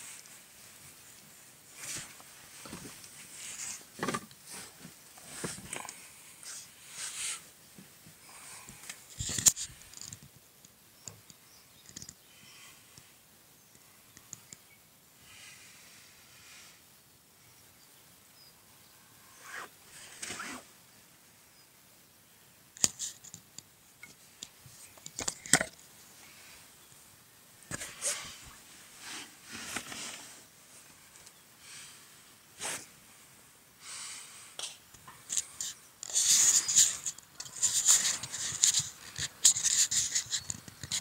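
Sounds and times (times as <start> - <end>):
tent fabric rustling: 19.4 - 20.7, 27.8 - 31.0.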